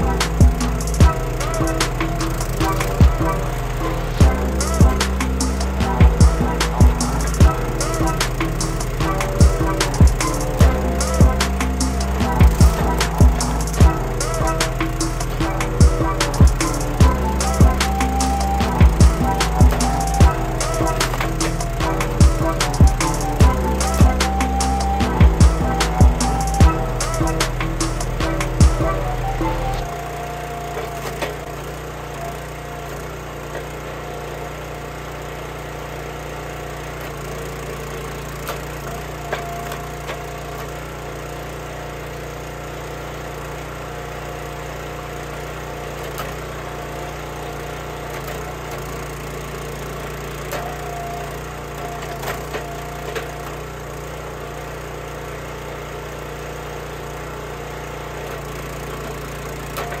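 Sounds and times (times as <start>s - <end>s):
small gas engine running: 0.0s - 60.0s
wood splitting cracks: 29.2s - 32.7s.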